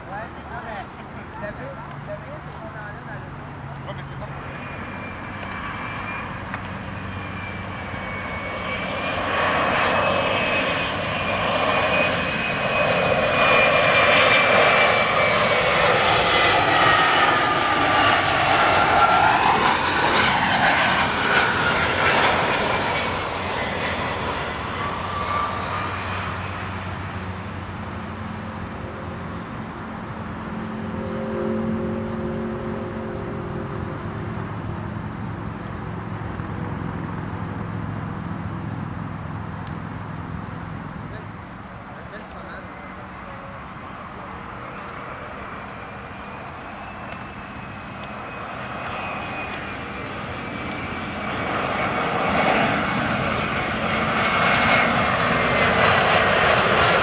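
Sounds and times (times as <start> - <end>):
jet engines whining flying past: 0.0 - 57.0
low jet engine drone: 0.0 - 57.0.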